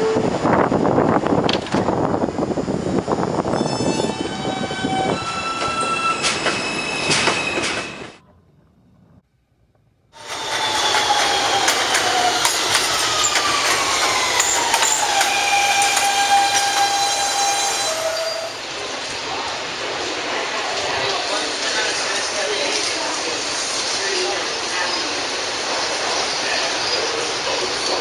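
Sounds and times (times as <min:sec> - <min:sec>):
subway train: 0:00.0 - 0:28.0
high squealing tones: 0:10.2 - 0:18.6
train motor whine: 0:10.2 - 0:18.6.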